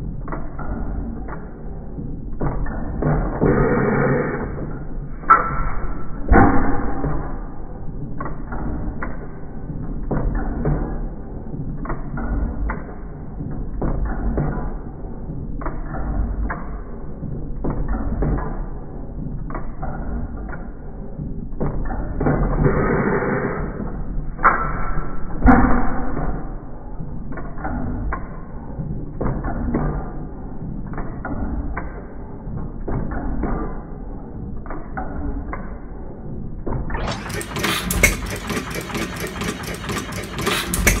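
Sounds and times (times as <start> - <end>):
hit-and-miss engine running: 2.0 - 10.9, 21.2 - 27.4, 36.7 - 41.0
engine firing reports: 3.0 - 7.2, 37.0 - 41.0
low mechanical rumble: 34.1 - 41.0.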